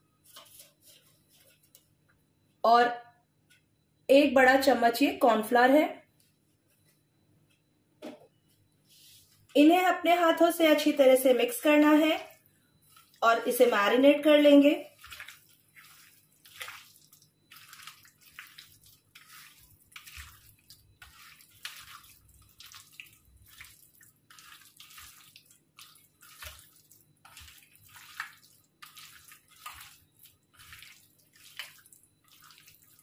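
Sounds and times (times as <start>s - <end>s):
hand squelching chicken in marinade: 12.8s - 33.0s.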